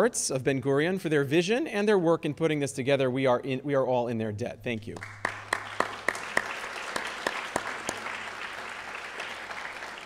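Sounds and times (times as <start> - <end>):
sharp individual claps: 4.9 - 10.0
audience applauding: 5.0 - 10.0.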